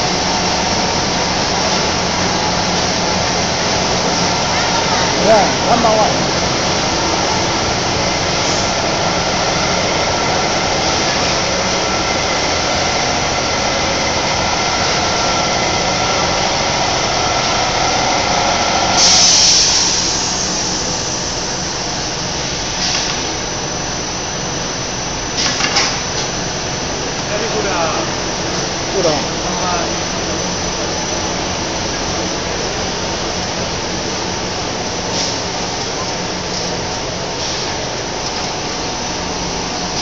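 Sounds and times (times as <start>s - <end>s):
production line machinery running: 0.0s - 40.0s.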